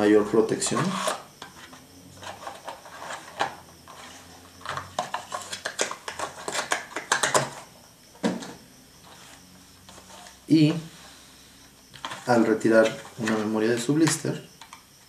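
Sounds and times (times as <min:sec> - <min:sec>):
plastic clacks: 0:04.6 - 0:07.6
plastic packs clicking and rattling: 0:04.6 - 0:08.5.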